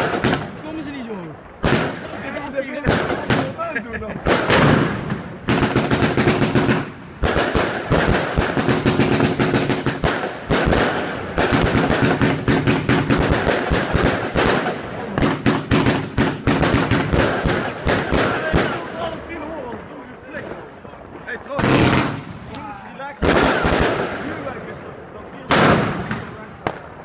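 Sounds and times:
fireworks shots and bursting stars: 0.0s - 0.9s, 1.6s - 19.1s.

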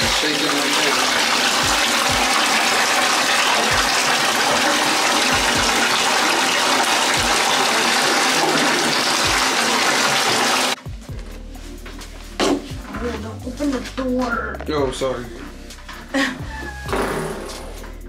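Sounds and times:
water running into bathtub: 0.0s - 10.8s.

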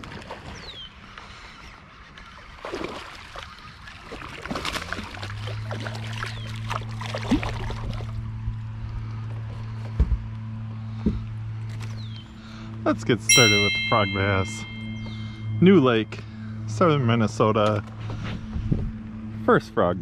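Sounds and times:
water splashes: 0.0s - 1.6s, 2.2s - 8.4s
fish splashing and thrashing: 2.2s - 8.4s
steady low hum: 13.4s - 19.8s.

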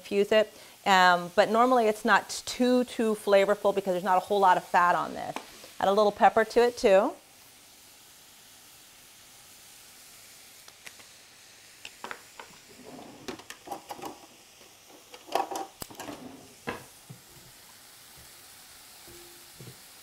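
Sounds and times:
vegetables sizzling in a frying pan: 0.0s - 20.0s
kitchen utensils clicking and clattering: 12.7s - 14.3s, 14.9s - 16.9s.

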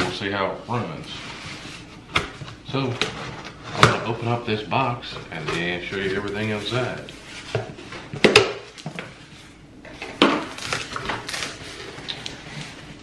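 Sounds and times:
cardboard scraping and rustling: 9.2s - 13.0s.

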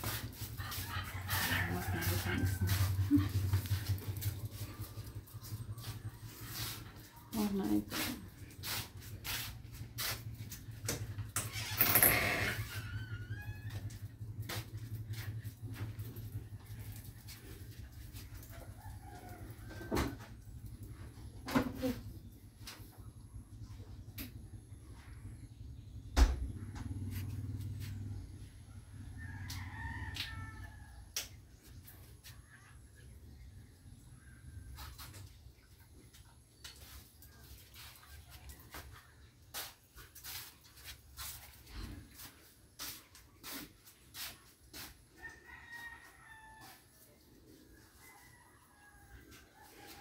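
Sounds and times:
rooster crowing: 0.7s - 3.4s, 12.1s - 14.0s, 29.1s - 31.0s, 45.2s - 47.0s.

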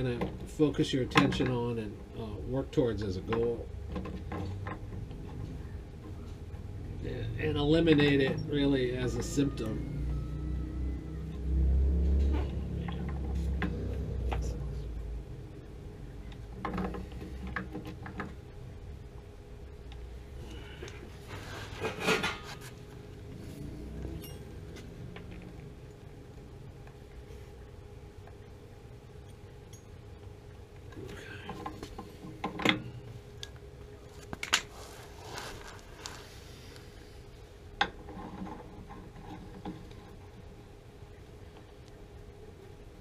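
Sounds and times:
steady low hum: 0.0s - 43.0s
metal scraping and rattling: 21.2s - 22.8s.

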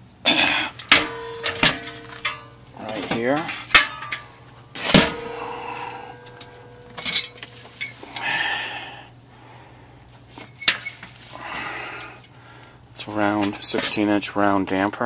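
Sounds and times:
sheet metal scraping and rattling: 0.8s - 8.2s
metallic knock with ringing: 0.9s - 2.6s, 4.9s - 7.6s.

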